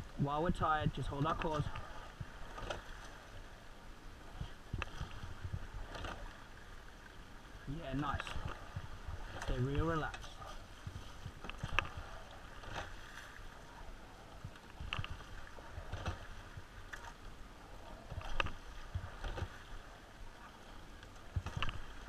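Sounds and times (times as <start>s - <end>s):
water sloshing along hull: 0.0s - 22.0s
oars clacking in gates: 9.3s - 10.6s.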